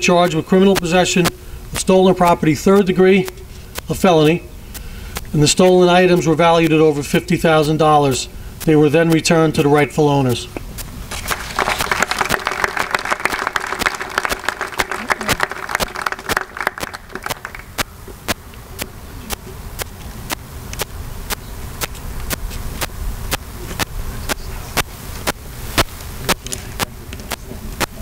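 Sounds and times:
audience applauding: 11.1 - 17.9.

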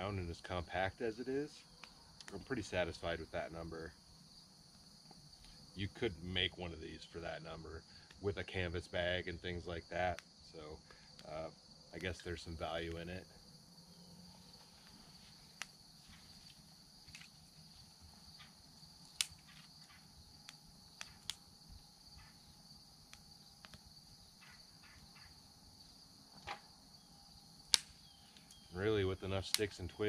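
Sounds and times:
high insect chorus: 0.0 - 30.0
twig fire crackling: 0.0 - 30.0
sharp fire pops: 18.4 - 21.5, 27.6 - 28.6, 29.4 - 29.8.

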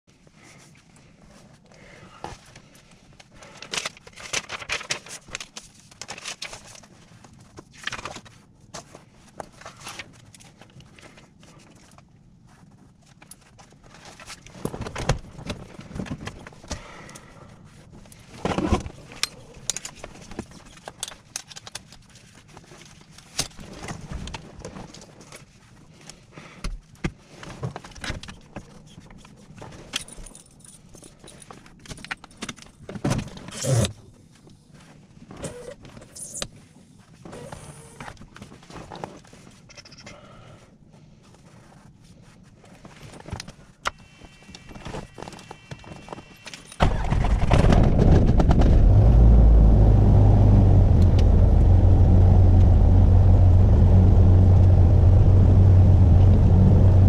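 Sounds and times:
paper and clipboard rustling: 0.1 - 39.9, 40.8 - 46.8
keys jingling: 29.9 - 32.4.

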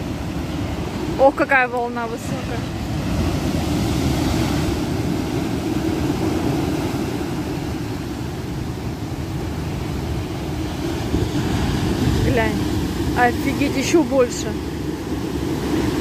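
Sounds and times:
storm waves breaking on shore: 0.0 - 16.0.

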